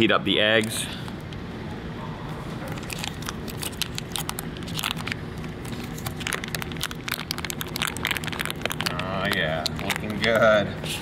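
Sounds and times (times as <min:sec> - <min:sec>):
steady low hum: 0:00.0 - 0:11.0
plastic packaging crackling: 0:02.6 - 0:10.7.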